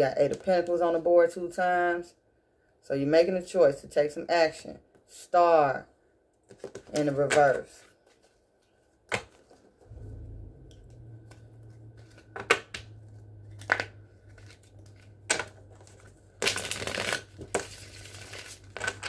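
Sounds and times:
low steady hum: 0:09.5 - 0:19.0
cards shuffling: 0:11.2 - 0:19.0
cards snapping and tapping: 0:12.1 - 0:12.9, 0:13.5 - 0:17.8.

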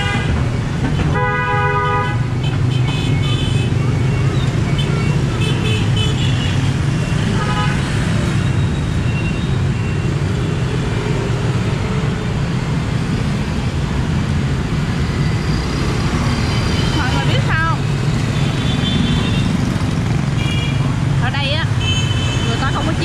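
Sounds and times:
motorbikes and cars passing: 0:00.0 - 0:23.0.

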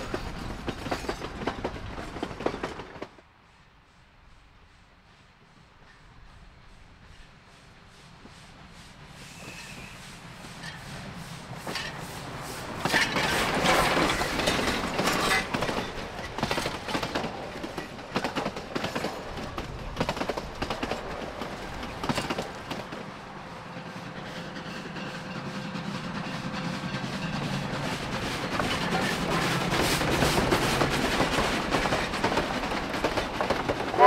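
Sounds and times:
wheels clacking over rail joints: 0:00.0 - 0:03.2, 0:11.6 - 0:23.2, 0:24.2 - 0:34.0
steady train rumble: 0:00.0 - 0:34.0
steam locomotive passing: 0:00.0 - 0:34.0.

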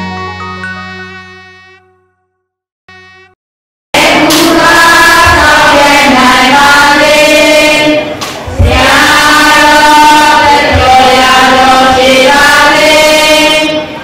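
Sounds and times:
group of voices chanting: 0:04.0 - 0:13.9.

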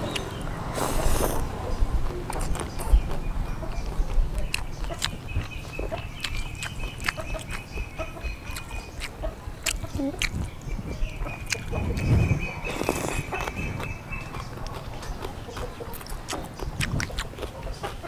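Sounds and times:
chewing with clicking mouth sounds: 0:00.1 - 0:18.0
slurping noodles: 0:00.7 - 0:01.6, 0:12.0 - 0:13.6.

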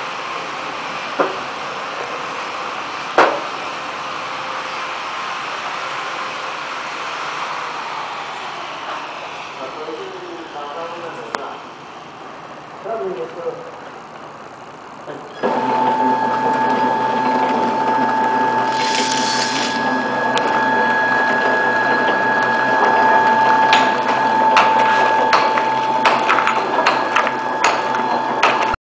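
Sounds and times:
packing machine whine and clatter: 0:13.0 - 0:28.8.

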